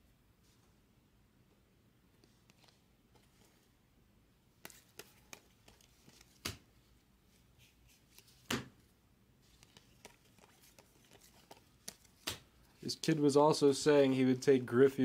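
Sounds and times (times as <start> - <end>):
cards slapping: 4.6 - 6.7, 7.6 - 8.8, 9.5 - 13.3
trading cards flicking: 9.5 - 13.2.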